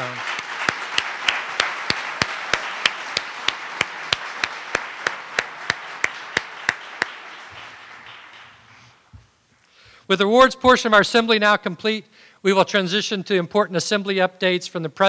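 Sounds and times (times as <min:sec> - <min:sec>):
audience applauding: 0:00.0 - 0:09.2
close sharp hand claps: 0:00.0 - 0:09.3.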